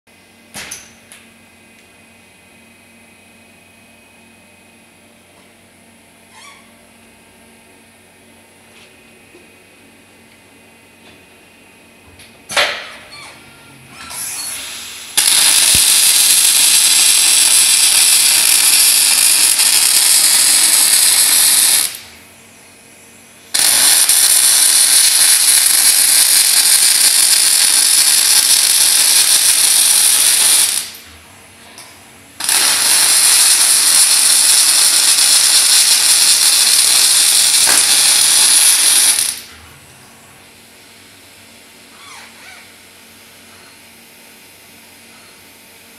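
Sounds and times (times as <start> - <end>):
arc welding: 14.0 - 22.3, 23.4 - 39.6.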